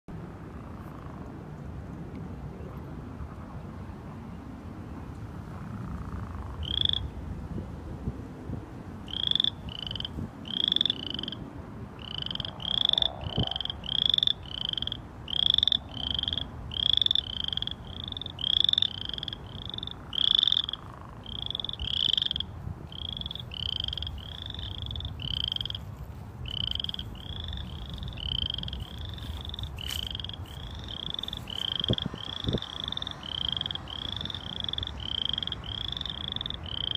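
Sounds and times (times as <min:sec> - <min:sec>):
frogs calling: 0:05.5 - 0:07.2, 0:09.0 - 0:36.9.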